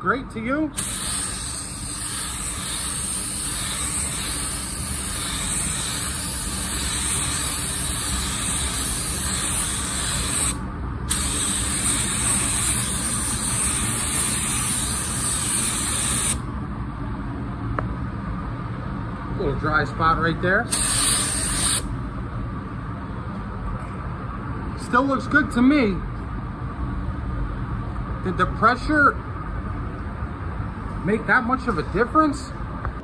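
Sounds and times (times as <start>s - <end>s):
spray gun hissing: 0.8s - 16.4s, 20.7s - 21.8s.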